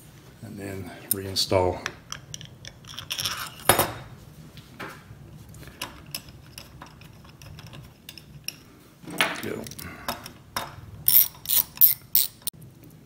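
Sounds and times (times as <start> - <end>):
small metal parts clicking: 11.0 - 12.5.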